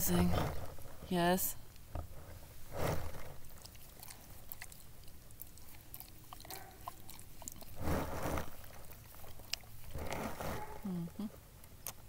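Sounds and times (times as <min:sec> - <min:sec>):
dog licking face: 0:03.5 - 0:07.8.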